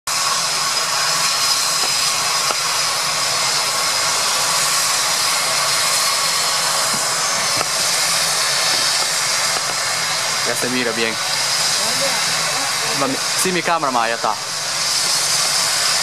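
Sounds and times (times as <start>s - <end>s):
helicopter turbine engines running: 0.1s - 16.0s.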